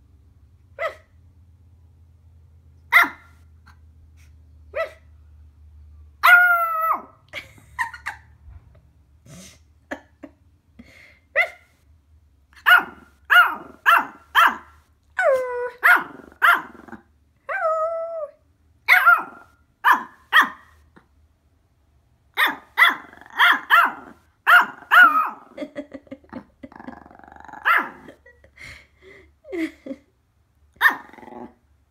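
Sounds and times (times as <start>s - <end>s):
puppy barking and yipping: 0.8s - 1.1s, 2.9s - 3.8s, 4.7s - 5.1s, 6.2s - 7.2s, 12.6s - 16.8s, 18.8s - 20.9s, 22.3s - 25.6s, 27.6s - 28.2s, 30.8s - 31.1s.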